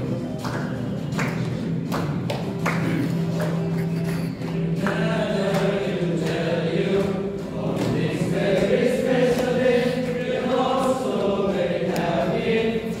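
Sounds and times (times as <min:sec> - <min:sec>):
group of people singing: 0:03.8 - 0:13.0.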